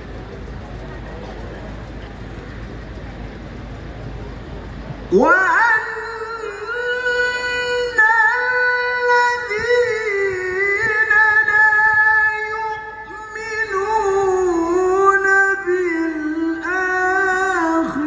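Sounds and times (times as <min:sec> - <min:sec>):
man reciting melodically: 0:05.1 - 0:18.0.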